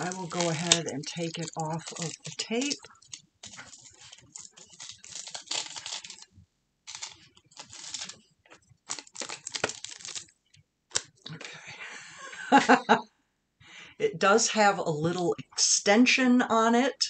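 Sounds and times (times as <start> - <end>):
paper packaging crinkling: 0.0 - 11.2.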